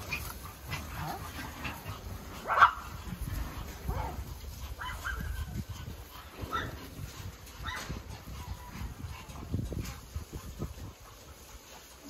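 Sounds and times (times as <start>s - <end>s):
dogs barking: 0.0s - 12.0s.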